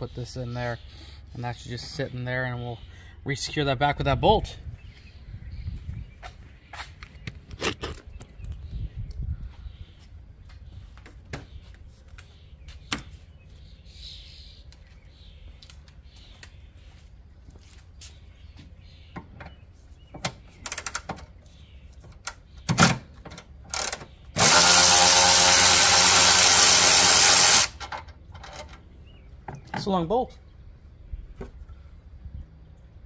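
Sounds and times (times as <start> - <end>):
tools and parts clicking: 20.6 - 21.3, 22.1 - 28.8
electric ratchet running: 23.7 - 27.8.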